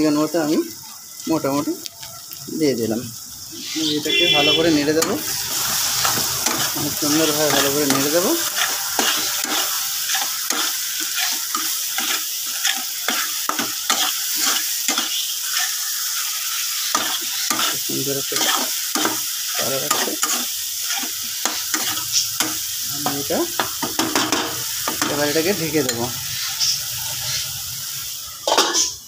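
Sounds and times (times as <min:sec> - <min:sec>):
food sizzling in oil: 0:00.0 - 0:29.0
spatula scraping pan: 0:03.6 - 0:25.2.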